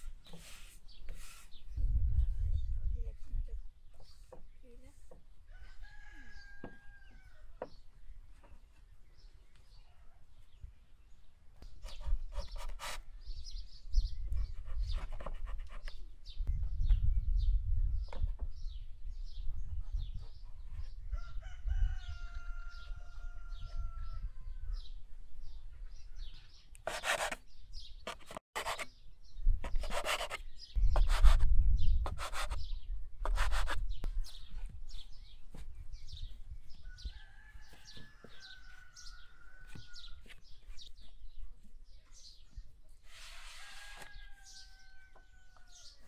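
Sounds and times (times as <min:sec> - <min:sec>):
rough scraping noises: 0:00.0 - 0:01.8, 0:26.8 - 0:28.9, 0:29.6 - 0:42.3, 0:42.9 - 0:46.0
small birds chirping: 0:00.0 - 0:46.0
rooster crowing: 0:05.5 - 0:07.6, 0:21.1 - 0:24.4, 0:36.8 - 0:40.2.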